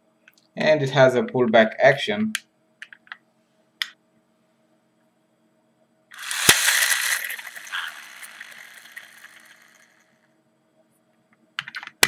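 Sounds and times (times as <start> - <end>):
toy car motor whirring: 6.1 - 10.2.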